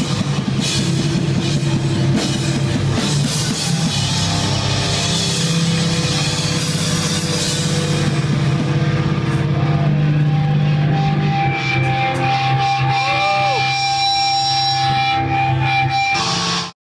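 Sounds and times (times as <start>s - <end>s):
hardcore band with distorted guitars: 0.0s - 16.8s.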